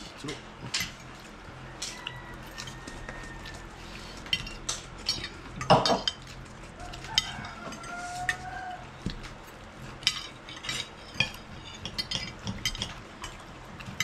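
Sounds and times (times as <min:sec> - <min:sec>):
cutlery clinking on plates: 0:04.2 - 0:08.5, 0:10.0 - 0:14.0
cutlery clatter: 0:04.4 - 0:06.3, 0:10.0 - 0:14.0.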